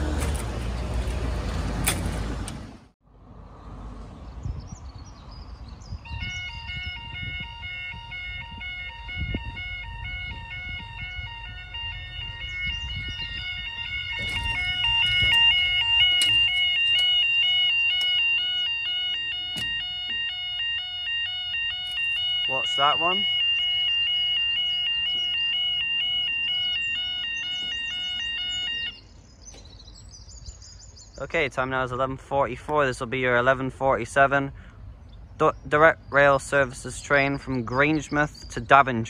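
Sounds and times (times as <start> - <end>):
two-tone level crossing alarm: 6.1 - 29.1.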